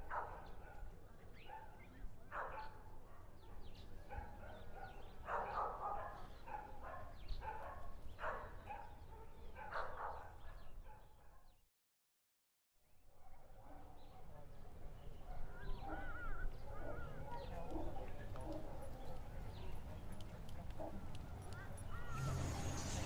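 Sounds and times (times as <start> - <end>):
faint animal calls: 15.6 - 17.6.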